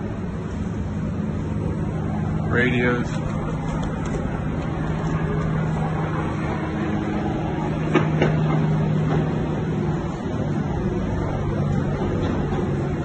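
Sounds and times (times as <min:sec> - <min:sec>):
machinery drone: 0:00.0 - 0:13.0.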